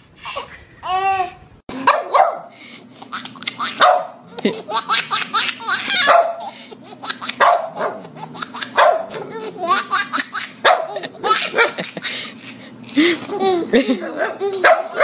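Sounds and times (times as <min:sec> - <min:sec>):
baby laughing: 0:00.2 - 0:01.9, 0:02.8 - 0:12.3, 0:13.0 - 0:15.0
dog barking: 0:01.8 - 0:02.5, 0:03.8 - 0:04.2, 0:06.0 - 0:06.4, 0:07.4 - 0:08.0, 0:08.8 - 0:09.3, 0:10.6 - 0:10.9, 0:14.2 - 0:15.0.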